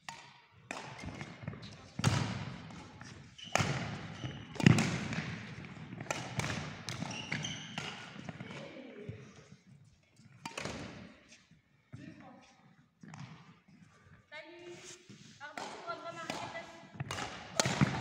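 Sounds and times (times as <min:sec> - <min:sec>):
racket striking shuttlecock: 0:00.0 - 0:01.4, 0:02.0 - 0:08.6, 0:10.4 - 0:11.1, 0:15.5 - 0:18.0
shoes squeaking on court floor: 0:02.7 - 0:08.8.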